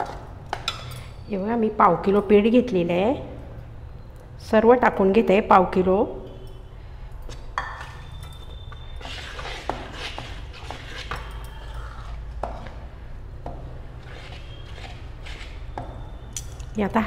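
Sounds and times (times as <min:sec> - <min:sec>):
spoon stirring batter in metal bowl: 0:07.3 - 0:16.4.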